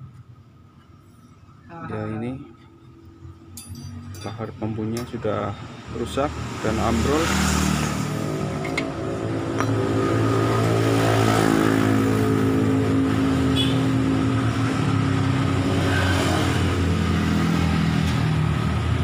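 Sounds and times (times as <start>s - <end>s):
engine running: 8.0s - 13.7s.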